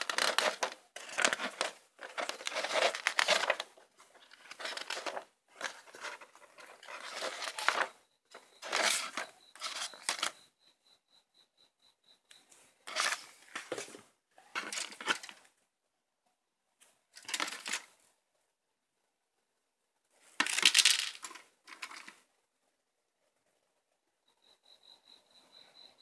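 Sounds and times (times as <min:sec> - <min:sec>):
paper rustling: 0:00.0 - 0:10.4, 0:12.9 - 0:15.4, 0:17.2 - 0:17.9, 0:20.4 - 0:22.2
plastic parts clattering: 0:00.0 - 0:10.4, 0:12.9 - 0:15.5, 0:17.2 - 0:17.9, 0:20.4 - 0:22.2.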